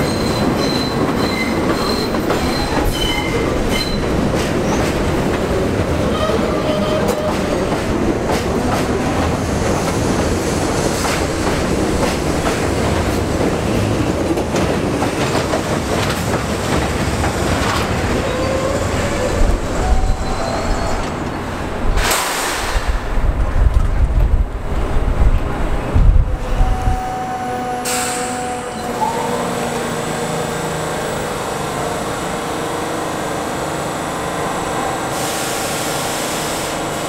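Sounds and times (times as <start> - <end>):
loud hiss: 22.0 - 23.0.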